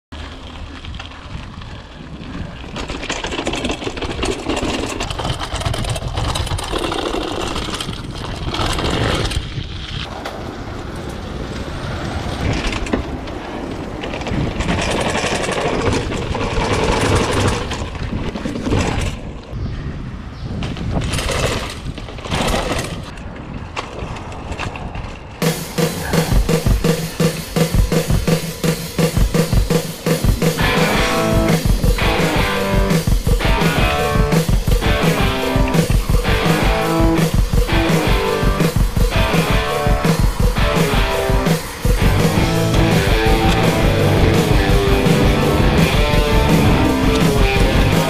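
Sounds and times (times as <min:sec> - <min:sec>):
bike tyres rumbling on stone: 0:00.1 - 0:19.6, 0:20.5 - 0:48.0
bike frame rattling and knocking: 0:02.4 - 0:09.6, 0:14.0 - 0:19.3, 0:20.6 - 0:23.2, 0:29.1 - 0:48.0.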